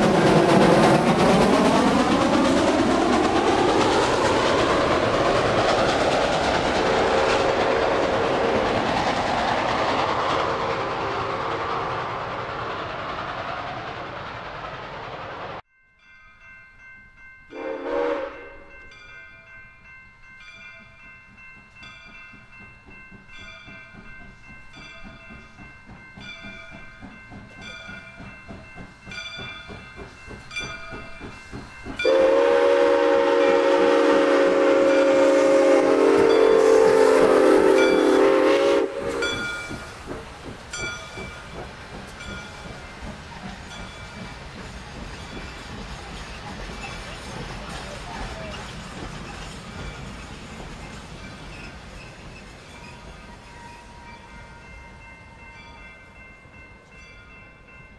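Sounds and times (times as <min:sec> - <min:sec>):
steam locomotive running past: 0:00.0 - 0:15.7, 0:16.3 - 0:57.9
steam whistle blowing: 0:17.5 - 0:18.7, 0:32.0 - 0:39.6.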